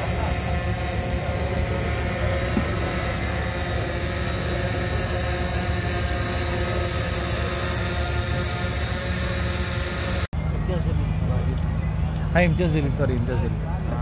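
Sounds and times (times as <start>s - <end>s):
mechanical drone with hiss: 0.0s - 10.3s.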